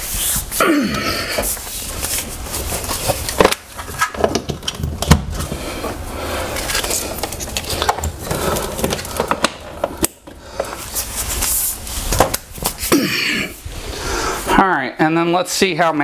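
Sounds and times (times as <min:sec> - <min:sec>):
cables rustling and knocking: 0:00.2 - 0:12.9.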